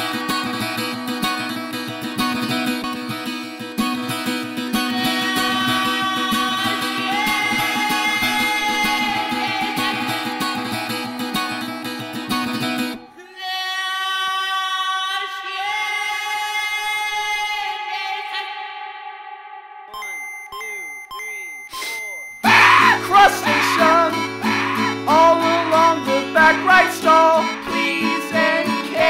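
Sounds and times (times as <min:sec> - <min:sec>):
electric guitar: 0:00.0 - 0:13.0
sustained high tones ringing: 0:05.3 - 0:12.0, 0:19.9 - 0:26.6.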